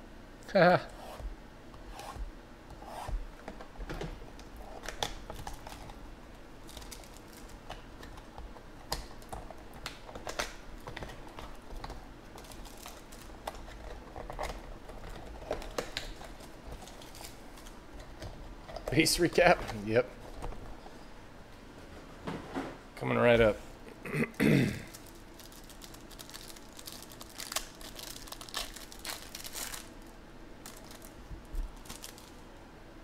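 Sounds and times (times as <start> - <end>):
hands opening plastic and cardboard: 24.9 - 30.0.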